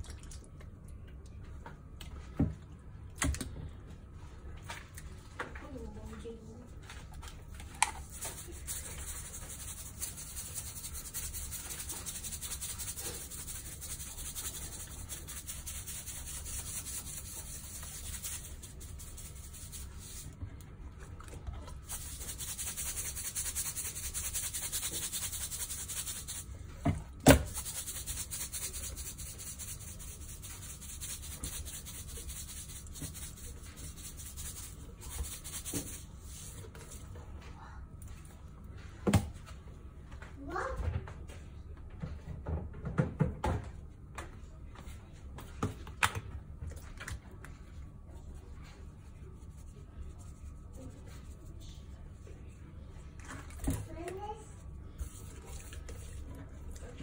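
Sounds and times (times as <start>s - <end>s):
hand rubbing salt on fish skin: 8.0s - 20.3s, 21.8s - 26.5s, 27.4s - 37.0s.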